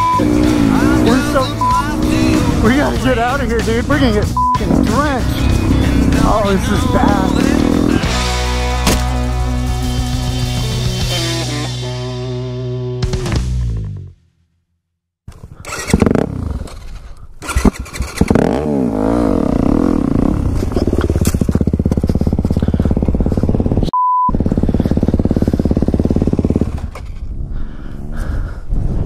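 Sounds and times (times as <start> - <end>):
dirt bike engine revving: 0.0 - 14.0, 15.6 - 27.6
electronic censor beep: 1.4 - 1.9, 4.4 - 4.6, 23.9 - 24.4.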